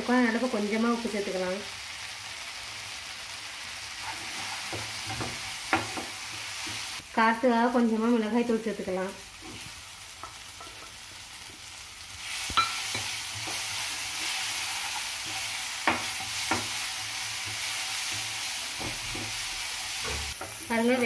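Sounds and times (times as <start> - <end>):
food sizzling in oil: 0.0 - 21.0
spatula scraping pan: 4.0 - 6.9.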